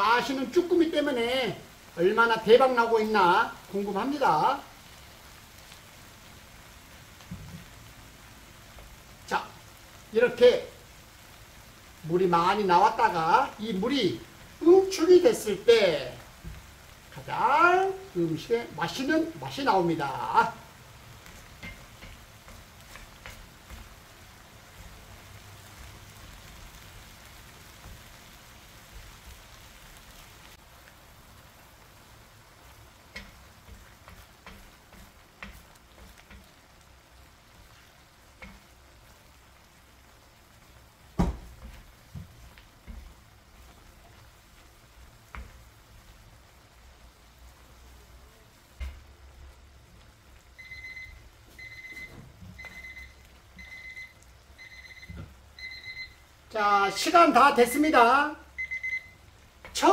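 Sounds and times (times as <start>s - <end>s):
sauce sizzling and bubbling: 0.0s - 59.9s
wooden spoon stirring: 12.5s - 30.3s, 32.5s - 54.0s
thump: 41.1s - 42.3s, 48.8s - 49.0s
kitchen timer beeping: 50.6s - 56.3s, 58.6s - 59.3s.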